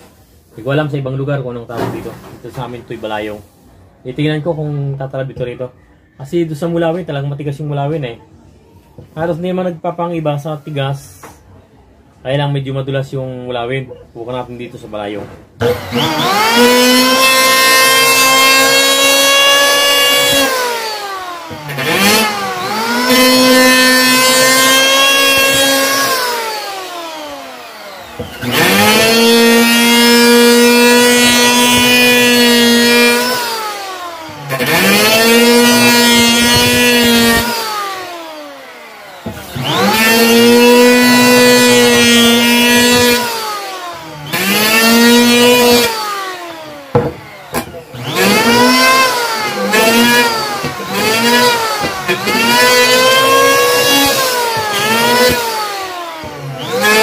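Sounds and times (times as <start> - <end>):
electric planer whining: 15.6 - 57.0.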